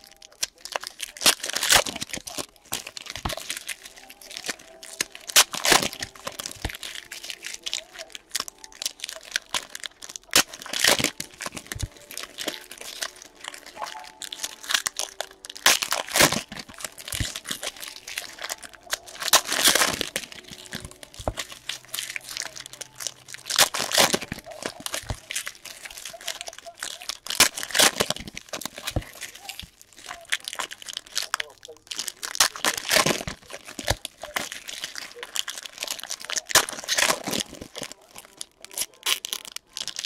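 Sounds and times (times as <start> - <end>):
foil wrappers crinkling and tearing: 0.0 - 40.0.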